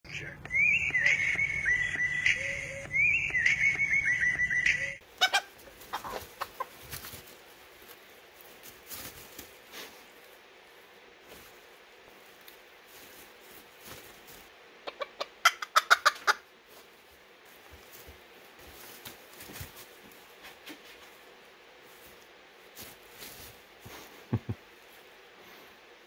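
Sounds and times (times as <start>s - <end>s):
rooster clucking: 4.6s - 7.1s, 14.8s - 16.5s.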